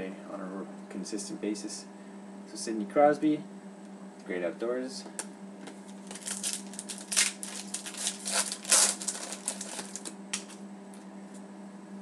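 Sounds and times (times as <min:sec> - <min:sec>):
foil wrapper crinkling: 0:05.9 - 0:10.6.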